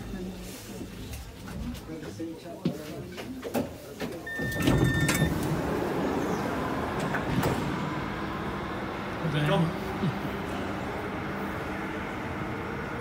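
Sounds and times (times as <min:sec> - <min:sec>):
train and door noise rushing: 0:03.6 - 0:09.2
door-closing warning beep: 0:04.2 - 0:05.4.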